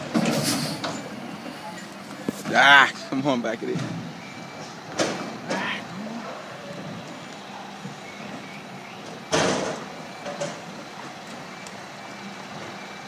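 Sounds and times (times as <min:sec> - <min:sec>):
diesel engine running: 0:00.0 - 0:13.0
air brakes hissing: 0:00.2 - 0:02.0.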